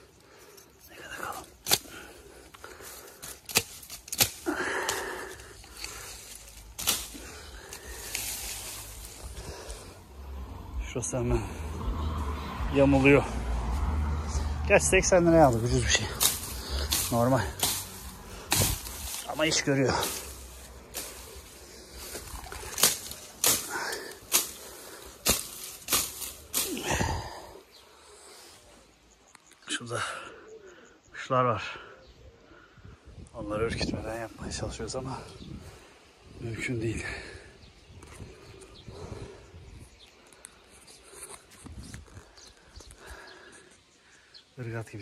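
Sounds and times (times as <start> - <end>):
rustling stalks and leaves: 0.0 - 45.0
sickle cracking through stems: 1.0 - 9.9, 15.3 - 27.6.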